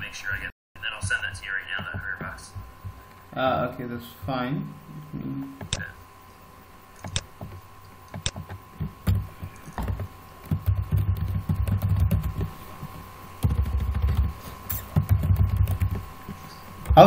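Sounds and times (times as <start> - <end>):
keyboard typing: 7.0 - 17.0.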